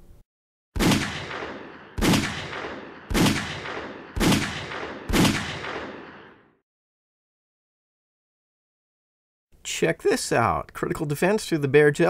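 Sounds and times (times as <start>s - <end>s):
gunshots echoing: 0.8s - 6.6s.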